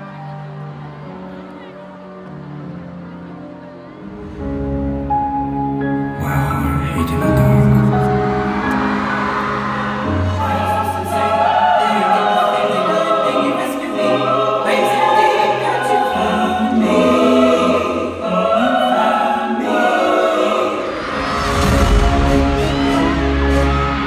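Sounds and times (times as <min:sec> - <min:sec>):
choir singing: 0:07.0 - 0:24.0.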